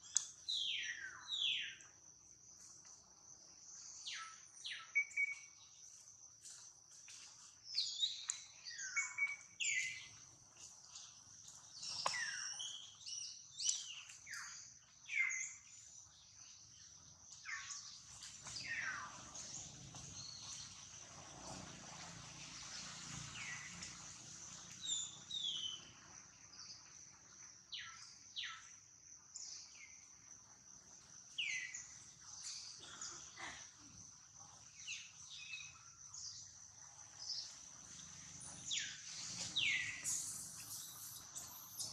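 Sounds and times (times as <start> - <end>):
high insect drone: 29.3 - 41.9.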